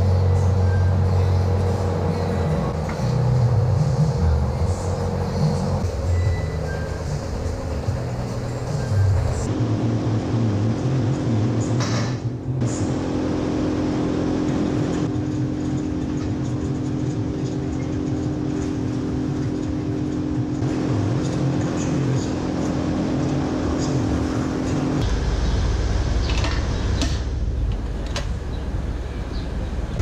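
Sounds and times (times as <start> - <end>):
milking machinery hum: 0.0 - 30.0
deep low rumble: 24.2 - 30.0.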